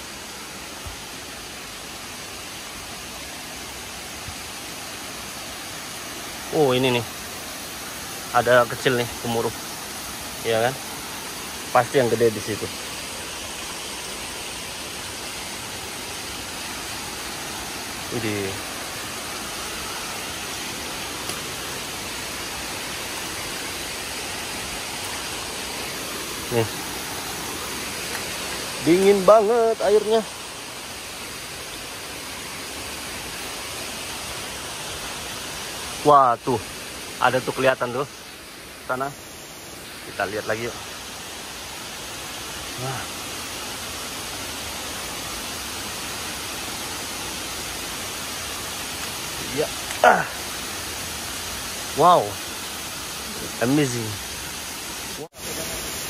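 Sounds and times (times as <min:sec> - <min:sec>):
waterfall roaring: 0:00.0 - 0:56.0.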